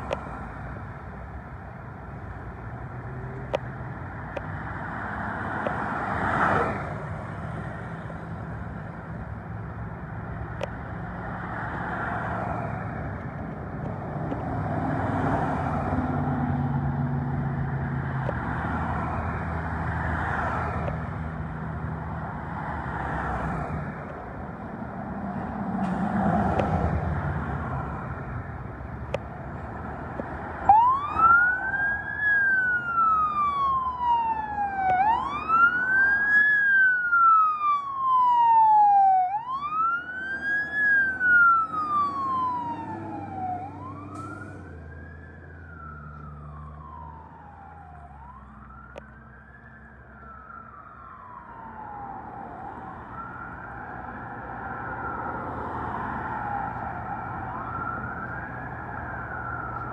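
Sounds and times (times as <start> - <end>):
fire engine wail siren: 2.2 - 9.2, 14.5 - 24.6, 29.7 - 59.9.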